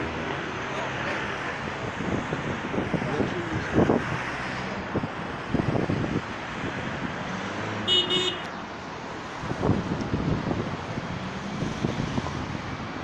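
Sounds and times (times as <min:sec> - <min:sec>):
road traffic passing: 0:00.0 - 0:13.0
wind buffeting microphone: 0:01.7 - 0:07.8, 0:09.3 - 0:13.0
car horn toot: 0:07.8 - 0:08.5.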